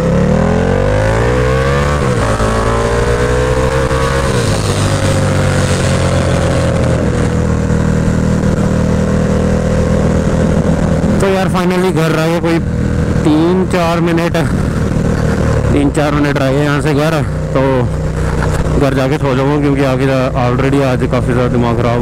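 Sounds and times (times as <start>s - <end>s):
motorcycle engine accelerating: 0.0s - 22.0s.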